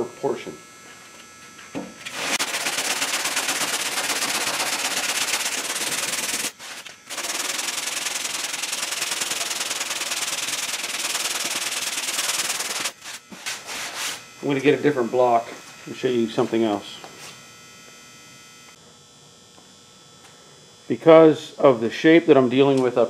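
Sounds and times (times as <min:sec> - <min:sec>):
hand sanding body filler: 0:02.1 - 0:14.6.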